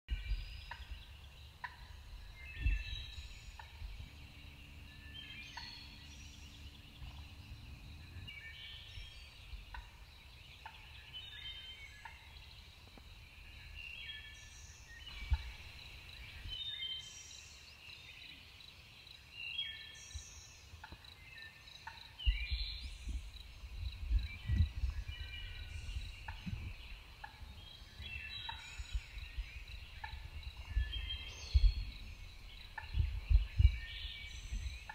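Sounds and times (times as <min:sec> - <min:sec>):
birds calling: 0:00.1 - 0:34.9
low rumble: 0:01.9 - 0:10.3, 0:22.3 - 0:27.6, 0:28.6 - 0:34.9.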